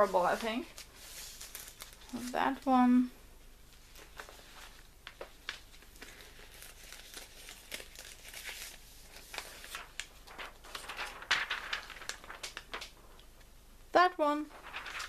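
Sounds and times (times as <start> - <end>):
pages turning: 0.0 - 2.3, 3.7 - 13.5, 14.5 - 15.0
plastic sleeves crinkling: 0.0 - 2.9, 3.7 - 13.5, 14.3 - 15.0.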